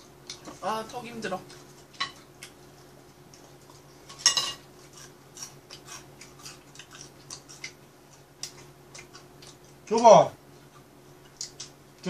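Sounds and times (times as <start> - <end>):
chopsticks clinking on ceramic plates: 4.1 - 4.6.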